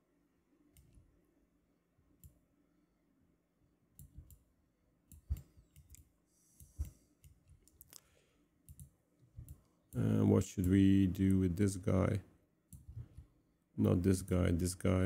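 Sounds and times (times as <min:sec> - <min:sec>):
computer mouse clicks: 0:04.0 - 0:04.4, 0:05.1 - 0:10.0, 0:10.6 - 0:11.4.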